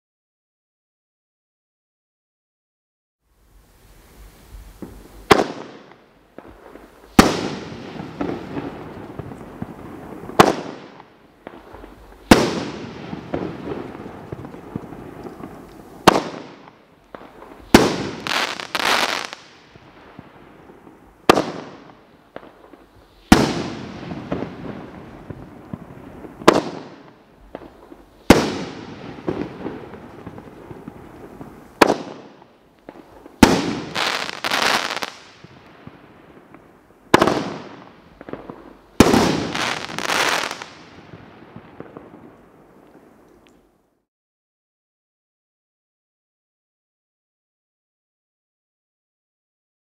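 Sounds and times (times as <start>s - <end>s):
crackling firework pops: 4.5s - 43.7s
firework shots firing: 4.8s - 19.6s, 21.2s - 35.5s, 36.5s - 42.2s.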